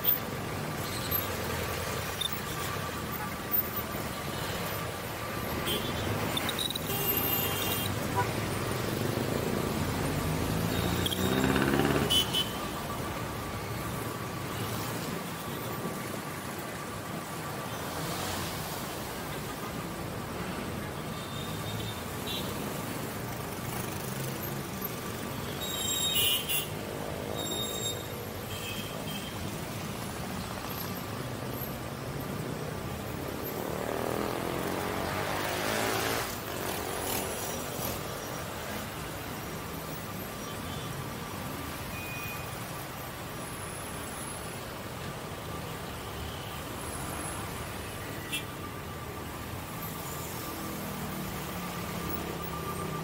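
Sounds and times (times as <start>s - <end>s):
vehicle engines passing: 7.5s - 20.9s, 22.1s - 25.5s, 29.4s - 40.1s, 48.8s - 53.0s.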